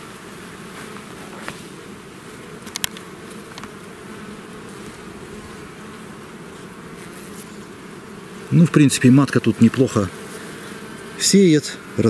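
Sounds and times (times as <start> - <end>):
honeybees buzzing: 0.0 - 12.0
sharp clicks: 2.6 - 3.8.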